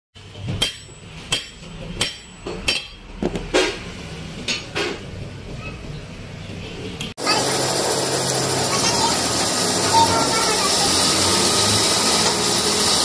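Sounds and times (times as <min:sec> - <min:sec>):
hammer striking steel: 0:00.3 - 0:03.9.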